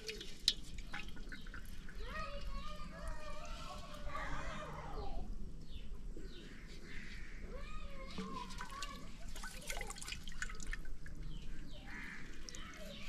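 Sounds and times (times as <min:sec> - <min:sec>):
water dripping into metal pot: 0:00.0 - 0:02.7, 0:08.2 - 0:13.0.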